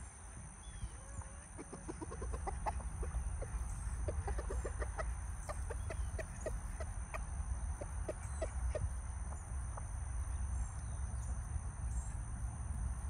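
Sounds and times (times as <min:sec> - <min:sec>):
chickens clucking: 0:00.8 - 0:10.8.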